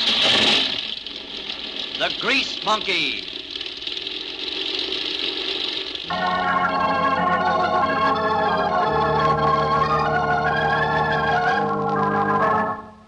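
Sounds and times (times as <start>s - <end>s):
engine-like drone: 0.0s - 11.9s
organ chords: 6.0s - 13.0s.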